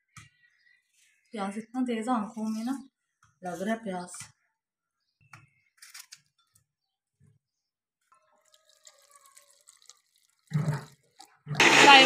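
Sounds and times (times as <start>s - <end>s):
water trickling into jar: 8.1s - 11.6s.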